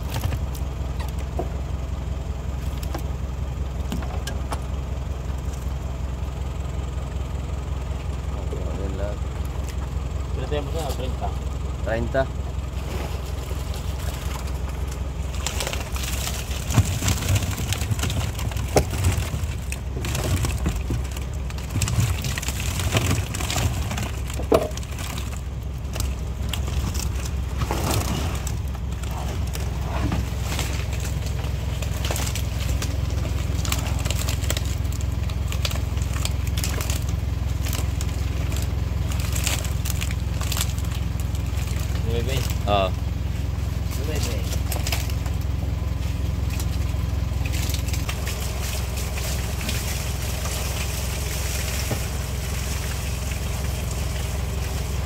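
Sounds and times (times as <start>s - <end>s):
steady low hum: 0.0s - 55.0s
fish knocking and clattering: 13.8s - 42.0s.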